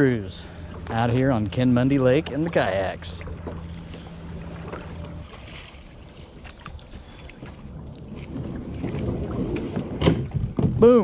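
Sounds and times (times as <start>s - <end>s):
low steady hum: 0.0s - 10.4s
paddle strokes in water: 0.3s - 10.8s.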